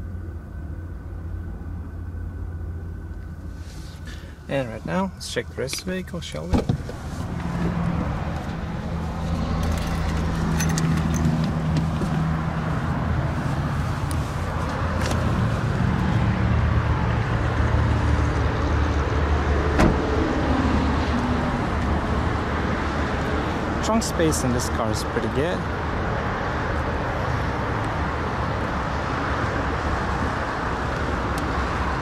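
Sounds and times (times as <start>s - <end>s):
steady low hum: 0.0s - 19.2s
car door opening: 6.4s - 8.6s, 19.7s - 20.1s
car door shutting: 6.4s - 8.6s, 19.8s - 20.1s
person climbing out of car: 6.5s - 15.5s.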